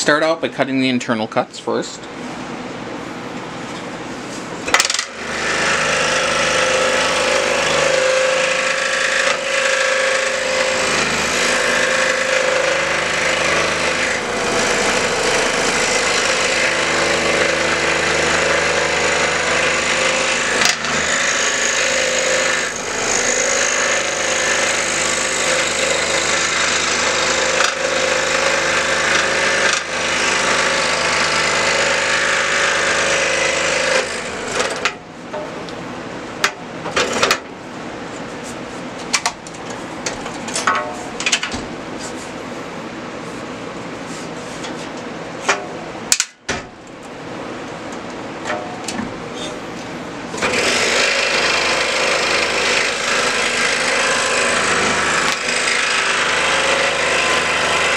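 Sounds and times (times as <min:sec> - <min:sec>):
scroll saw cutting wood: 0:04.7 - 0:34.9, 0:50.4 - 0:57.9.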